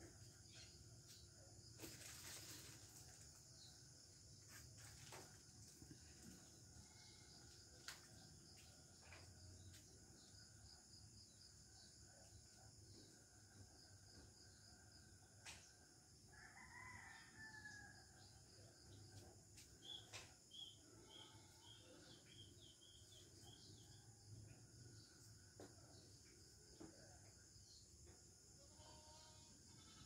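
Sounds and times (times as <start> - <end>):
rooster crowing: 16.3 - 18.2.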